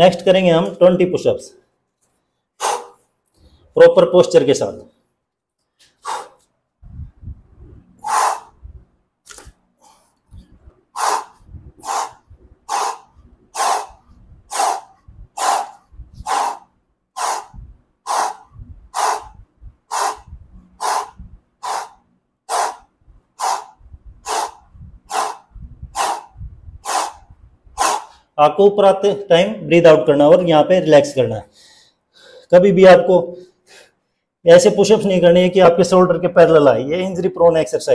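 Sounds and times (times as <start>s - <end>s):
man exhaling hard: 2.6s - 3.6s, 6.0s - 6.5s, 8.0s - 8.6s, 11.0s - 28.3s.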